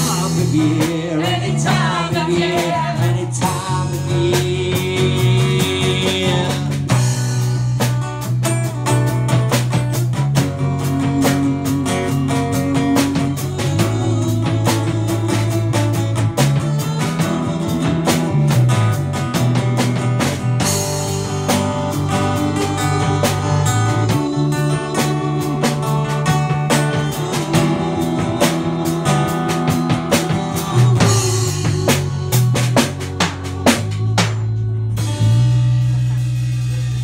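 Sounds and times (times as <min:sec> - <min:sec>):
women singing: 0:00.0 - 0:06.8, 0:10.8 - 0:18.6, 0:21.5 - 0:35.1
strummed acoustic guitar: 0:00.0 - 0:36.6
bass line: 0:00.0 - 0:37.0
drum kit beat: 0:00.0 - 0:37.0.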